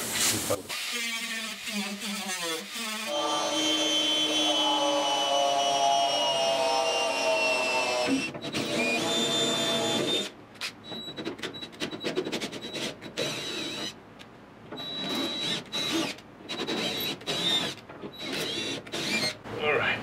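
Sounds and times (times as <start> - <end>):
electric drill whining: 0.7 - 10.3, 12.7 - 14.0, 14.8 - 19.4
drill bit squealing on metal: 14.8 - 19.4.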